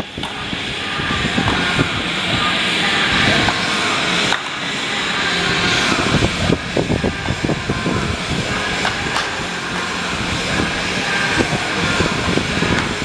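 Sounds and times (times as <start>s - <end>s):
background crowd noise: 0.0s - 13.0s
bat cracking on ball: 8.8s - 9.9s.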